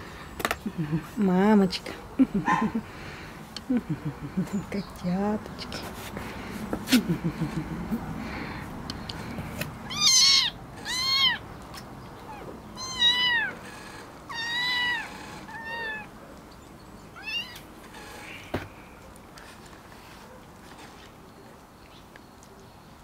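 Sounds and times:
kittens mewing: 6.9 - 11.5, 12.2 - 16.1, 17.2 - 18.5.

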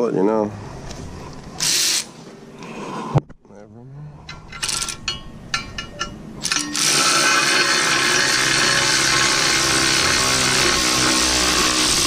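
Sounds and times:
electric ratchet running: 1.6 - 2.1, 6.4 - 12.0.

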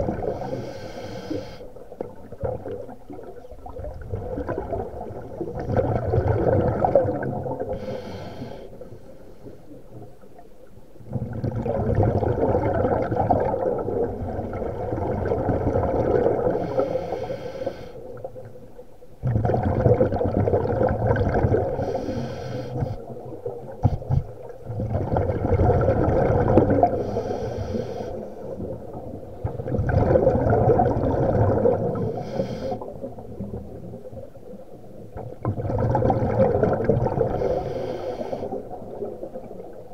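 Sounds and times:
exhaled bubbles underwater: 0.0 - 39.9
regulator hiss on inhale: 0.1 - 1.8, 7.6 - 9.8, 16.5 - 18.2, 21.8 - 23.1, 26.9 - 28.6, 32.0 - 33.1, 37.3 - 38.8.

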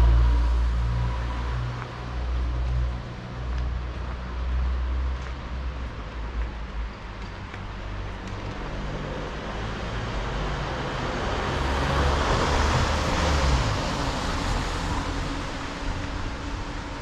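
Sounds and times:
low rumble of traffic: 0.0 - 17.0.

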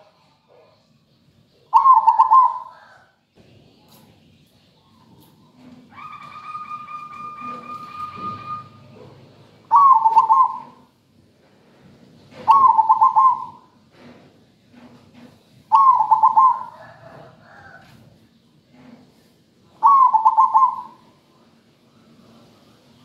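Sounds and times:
dove cooing: 1.7 - 3.2, 5.2 - 10.9, 12.3 - 13.8, 15.7 - 18.0, 19.7 - 21.2.

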